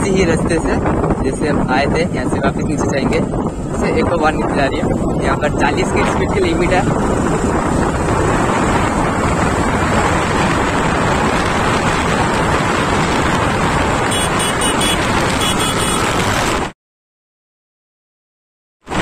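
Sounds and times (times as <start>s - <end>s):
wind rush on microphone: 0.0s - 16.8s
motorcycle engine running: 6.9s - 16.4s.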